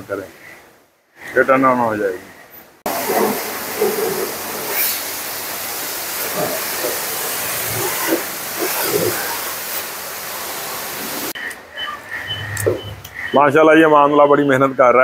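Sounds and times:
pressure washer spraying water: 2.9 - 11.4.

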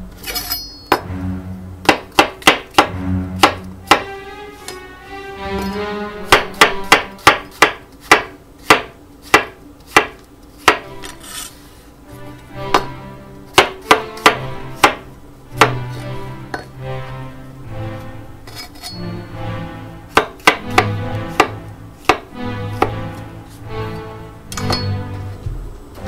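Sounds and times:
background music: 0.0 - 8.3, 10.0 - 26.0
knife chopping on wooden board: 1.8 - 4.1, 6.2 - 11.1, 12.7 - 16.8, 20.1 - 23.1.

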